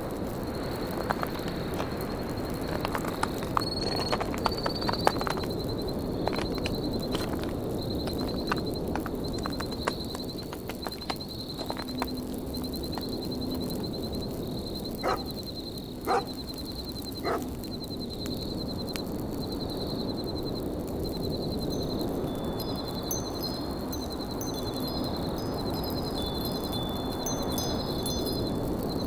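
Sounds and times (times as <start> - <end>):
campfire crackling: 0.0 - 29.0
steady wind: 0.0 - 29.0
wind chimes ringing: 21.7 - 29.0.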